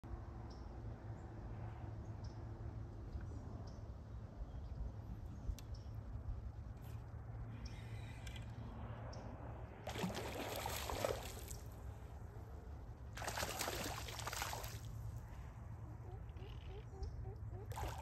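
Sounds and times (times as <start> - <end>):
steady low hum: 0.0 - 18.0
water sloshing and churning: 9.8 - 11.9, 13.1 - 15.2, 17.6 - 18.0.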